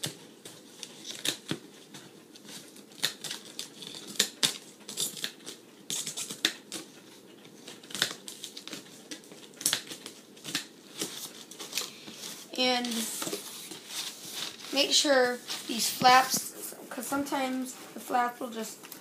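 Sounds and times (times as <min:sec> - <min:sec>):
packing tape crackling and tearing: 0:00.0 - 0:01.6, 0:02.4 - 0:07.0, 0:07.6 - 0:16.4.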